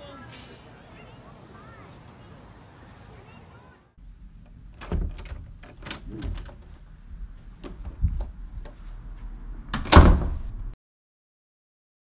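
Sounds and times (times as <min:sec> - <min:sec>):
soft knocks and clicks: 0:04.4 - 0:08.8.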